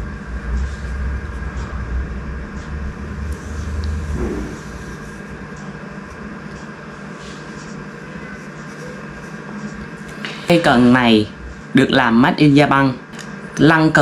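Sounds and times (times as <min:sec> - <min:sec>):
vehicle passing rumble: 0:00.0 - 0:05.5
faint steady whine: 0:00.0 - 0:14.0.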